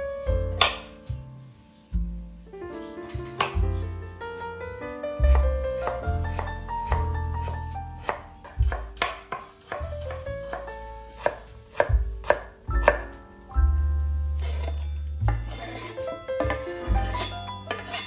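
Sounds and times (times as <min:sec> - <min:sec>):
background music: 0:00.0 - 0:18.0
knife chopping on wooden board: 0:00.6 - 0:00.9, 0:03.3 - 0:03.8, 0:05.2 - 0:13.1.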